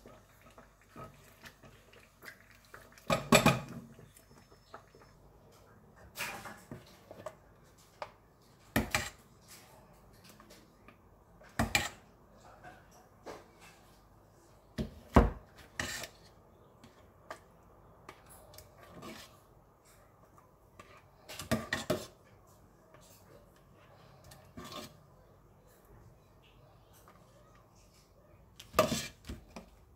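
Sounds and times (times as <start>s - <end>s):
metal ladle scraping a pot: 15.6s - 16.2s, 20.8s - 22.2s, 24.2s - 25.0s, 28.7s - 29.3s.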